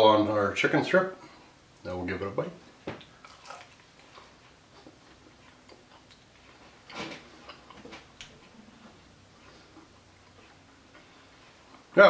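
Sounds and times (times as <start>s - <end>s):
chewing crunches: 3.0s - 8.5s.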